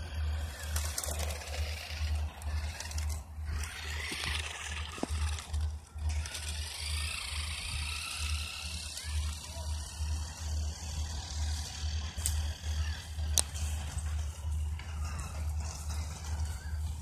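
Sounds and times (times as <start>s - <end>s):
toy truck electric motor whining: 0.0s - 17.0s.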